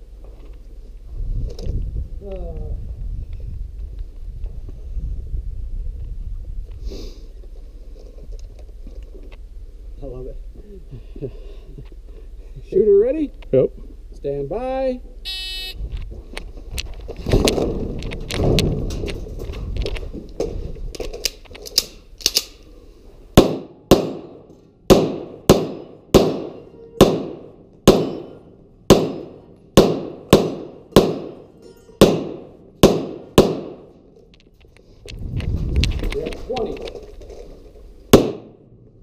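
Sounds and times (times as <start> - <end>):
rumbling rattle: 15.8 - 21.5, 34.4 - 38.1
pistol shots ringing in metal shed: 23.4 - 34.0, 38.1 - 38.7.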